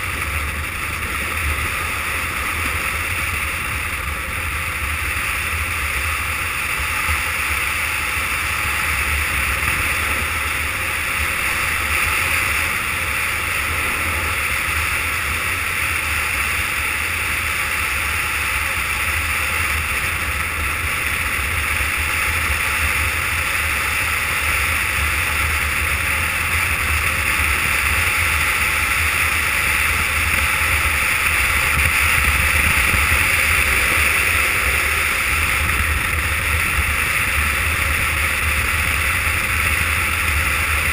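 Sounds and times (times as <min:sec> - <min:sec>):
longboard wheels rolling on asphalt: 0:00.0 - 0:40.9
wind buffeting microphone: 0:26.6 - 0:40.9.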